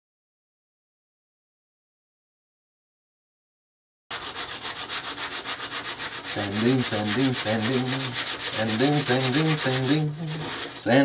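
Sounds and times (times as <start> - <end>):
sandpaper scratching on wood: 4.1 - 11.0
person humming a tune: 6.5 - 11.0.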